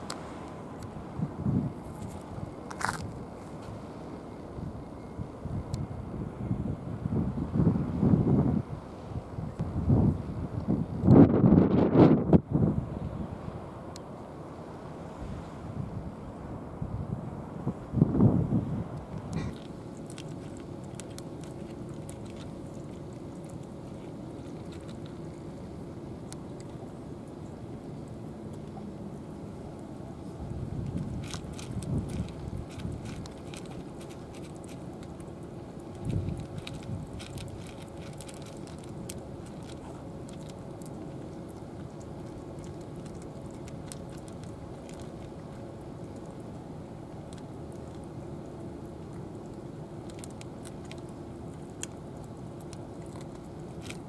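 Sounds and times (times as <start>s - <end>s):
steady low hum: 0.0s - 54.0s
cats crunching dry kibble: 1.8s - 3.6s, 19.1s - 29.0s, 29.6s - 54.0s.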